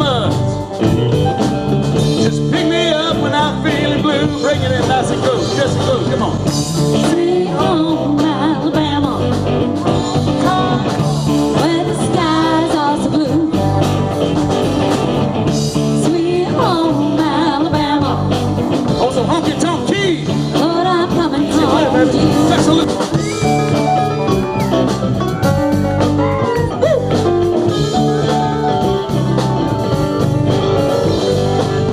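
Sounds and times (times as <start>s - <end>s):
drums: 0.0s - 31.9s
electric guitar: 0.0s - 31.9s
keyboard: 0.0s - 31.9s
person singing: 20.6s - 24.6s.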